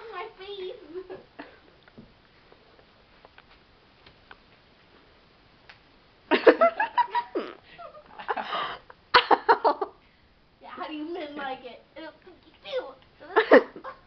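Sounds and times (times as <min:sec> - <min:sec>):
faint clicks and rustles: 0:00.0 - 0:05.9
girl laughing: 0:06.3 - 0:10.0, 0:12.7 - 0:14.0.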